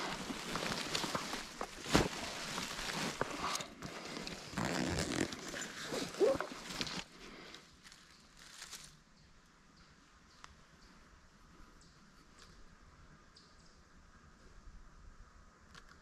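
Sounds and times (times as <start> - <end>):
footsteps crunching dry leaves: 0.0 - 9.0.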